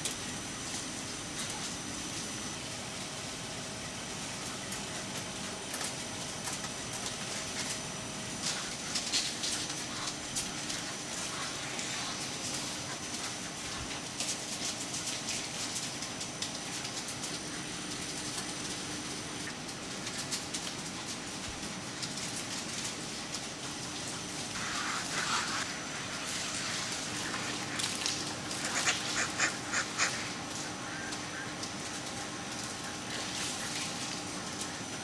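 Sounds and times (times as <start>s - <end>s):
ventilation fans humming: 0.0s - 35.0s
ducks quacking: 28.5s - 31.6s.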